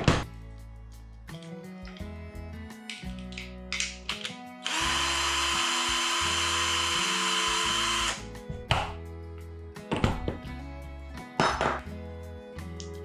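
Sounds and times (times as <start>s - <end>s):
cordless drill whining: 4.6s - 8.3s.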